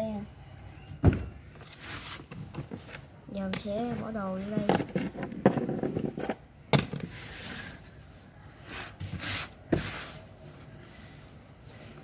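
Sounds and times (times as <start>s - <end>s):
rubbing and scraping of objects: 1.5s - 12.0s.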